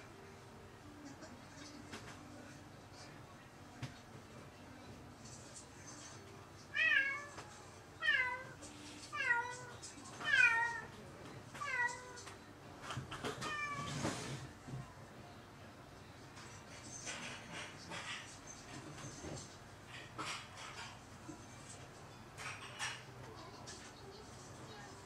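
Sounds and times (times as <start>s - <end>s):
cat meowing: 6.7s - 7.4s, 8.0s - 10.9s.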